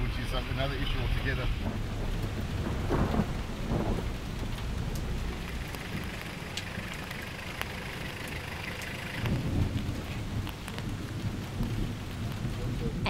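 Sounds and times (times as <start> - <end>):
rain falling: 0.0 - 13.0
ticking raindrops: 0.0 - 13.0
vehicle engine rumbling: 0.0 - 13.0.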